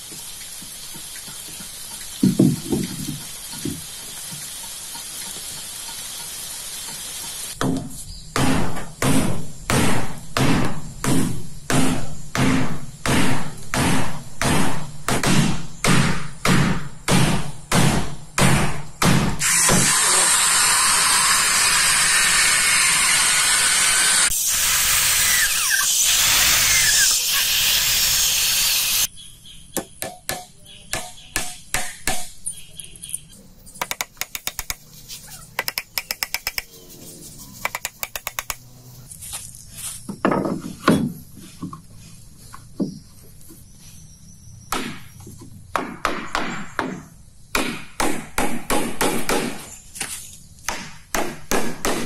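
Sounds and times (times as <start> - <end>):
hammering on timber: 2.2 - 3.8, 7.6 - 19.4, 29.8 - 32.4, 44.7 - 45.1, 45.7 - 49.7, 50.7 - 52.0
power tool running: 19.4 - 29.1.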